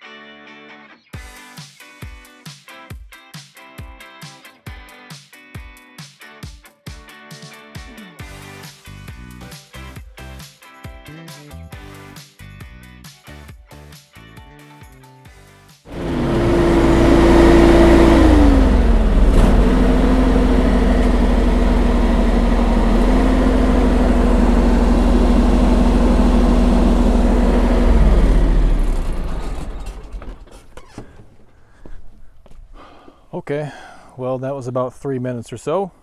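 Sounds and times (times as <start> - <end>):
lawn tractor engine running: 15.9 - 31.5
mower blades spinning: 15.9 - 31.6.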